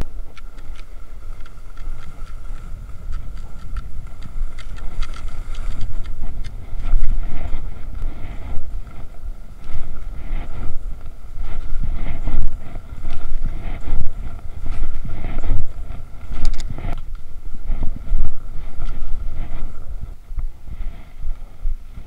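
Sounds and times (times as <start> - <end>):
skis sliding on snow: 0.0 - 22.0
wind buffeting microphone: 0.0 - 22.0
clicks and scrapes of poles: 0.3 - 7.0.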